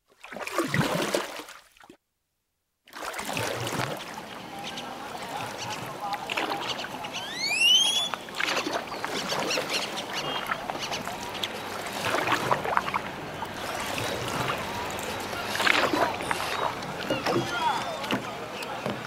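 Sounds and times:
paddle splashing in water: 0:00.1 - 0:02.0, 0:02.9 - 0:19.0
short rising whistle: 0:07.2 - 0:08.1.

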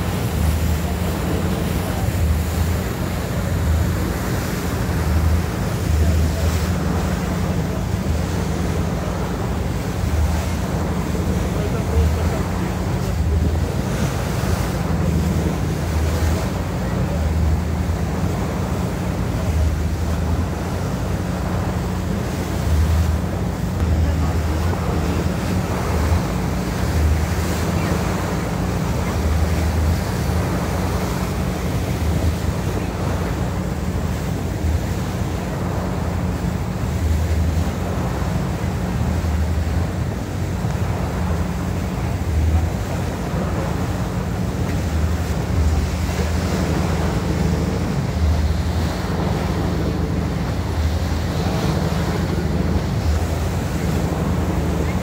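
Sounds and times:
boat engine running: 0:00.0 - 0:55.0
rushing sea water: 0:00.0 - 0:55.0
wind on microphone: 0:00.0 - 0:55.0.

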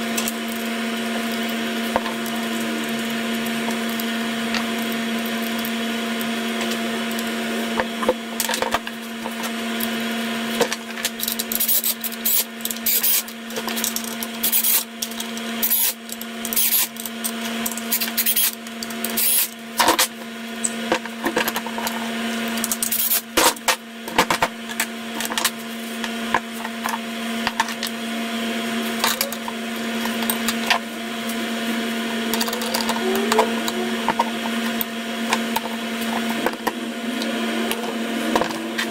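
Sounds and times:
steady background hum: 0:00.0 - 0:38.9
metal parts clicking and scraping: 0:10.6 - 0:20.1, 0:22.6 - 0:23.6, 0:32.3 - 0:34.9.

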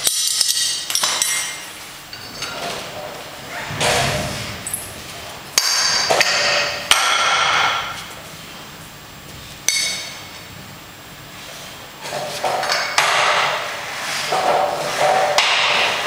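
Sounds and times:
iron weight plates clanking: 0:02.1 - 0:08.0.

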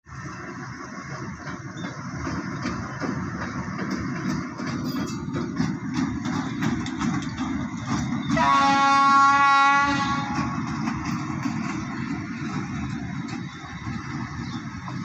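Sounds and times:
diesel locomotive rumbling: 0:00.1 - 0:15.0
wheels clacking over rail joints: 0:00.1 - 0:15.0
train horn: 0:08.3 - 0:10.7.

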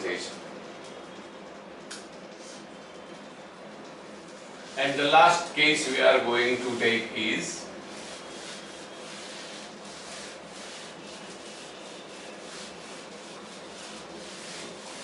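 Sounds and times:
eraser rubbing whiteboard: 0:06.2 - 0:15.0.

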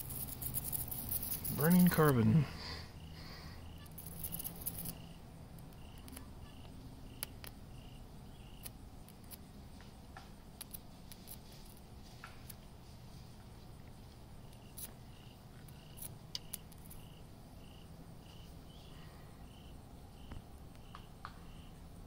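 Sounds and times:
electric arc crackling hiss: 0:00.0 - 0:02.1
crickets chirping: 0:00.0 - 0:22.0.

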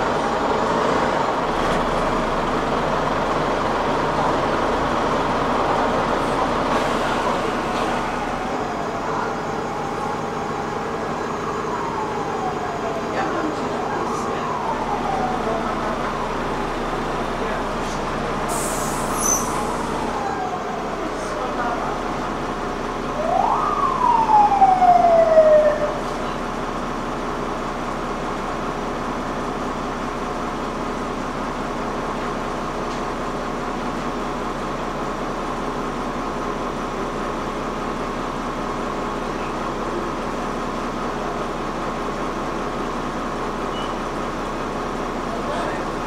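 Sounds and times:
bus engine drone: 0:00.0 - 0:46.0
siren wail: 0:08.0 - 0:16.8, 0:19.8 - 0:21.2, 0:23.1 - 0:26.4.

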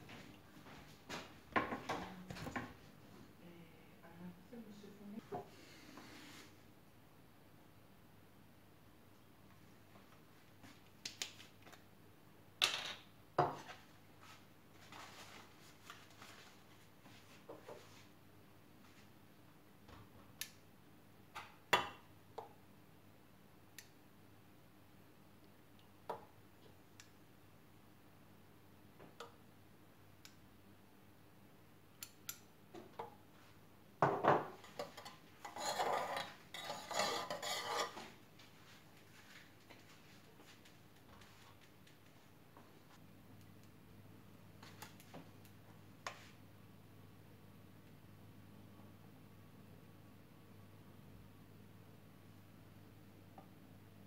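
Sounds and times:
metal spoon scraping saucepan: 0:34.6 - 0:38.1.

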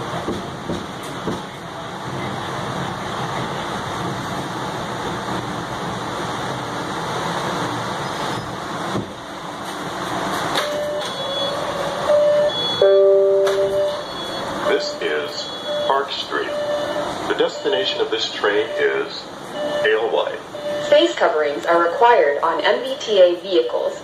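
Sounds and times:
subway car rumbling: 0:00.0 - 0:24.0
two-note electronic door chime: 0:10.7 - 0:14.4.

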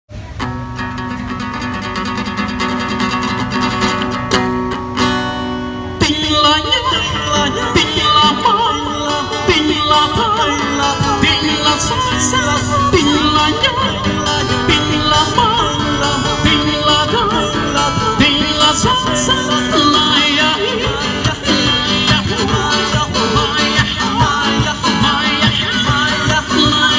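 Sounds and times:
acoustic guitars strumming: 0:00.1 - 0:26.9
man singing: 0:05.9 - 0:26.9.

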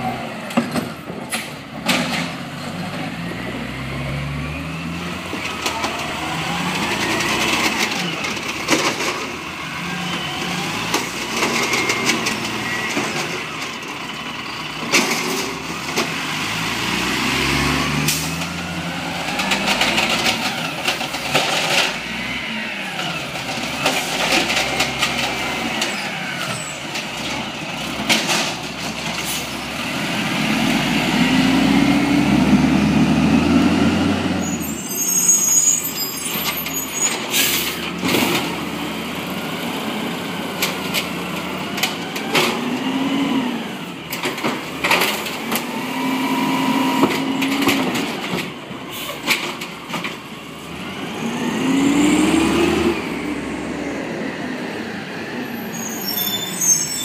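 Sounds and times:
truck engine revving: 0:02.4 - 0:34.5, 0:37.4 - 0:48.6, 0:50.2 - 0:55.6
air brakes hissing: 0:37.0 - 0:37.8, 0:48.9 - 0:49.2.

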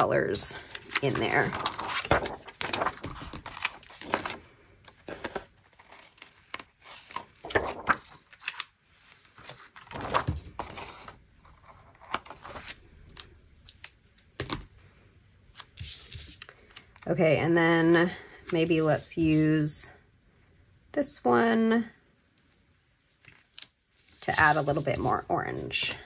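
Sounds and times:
paper page turning: 0:00.6 - 0:12.8, 0:15.5 - 0:16.5.

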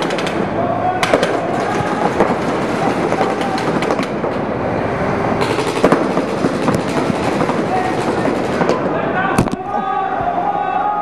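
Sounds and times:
paintball markers firing: 0:00.0 - 0:00.4, 0:01.0 - 0:04.4, 0:05.4 - 0:09.6.

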